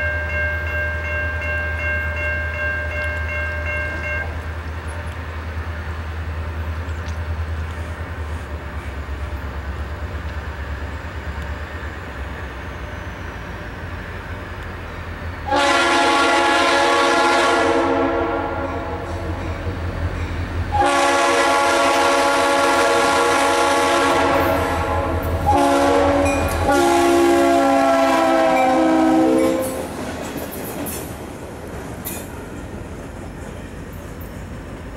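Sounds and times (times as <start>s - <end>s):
locomotive air horn: 15.4s - 19.5s, 20.7s - 29.8s.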